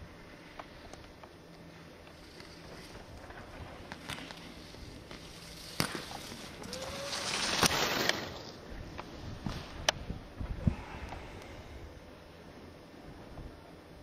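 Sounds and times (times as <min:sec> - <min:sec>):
skis scraping across hard snow: 0:02.2 - 0:08.6.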